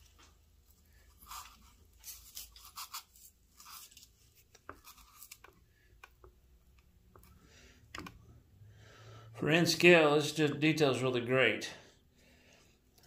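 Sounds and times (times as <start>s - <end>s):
fingers rubbing and scratching: 1.2s - 4.0s.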